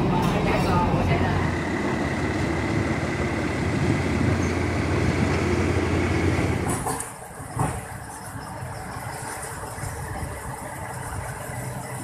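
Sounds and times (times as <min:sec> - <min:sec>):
train rumbling on track: 0:00.0 - 0:12.0.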